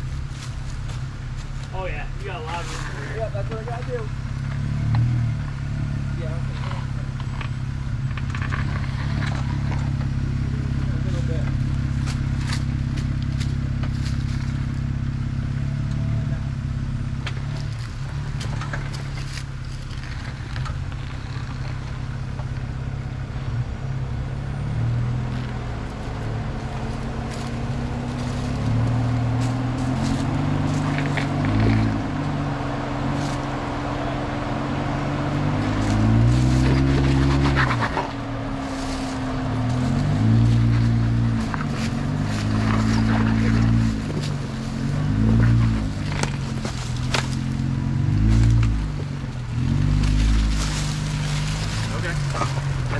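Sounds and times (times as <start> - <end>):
car engine revving: 0.0 - 52.9
clicks and crunches on rocks: 17.5 - 22.6, 35.6 - 49.0.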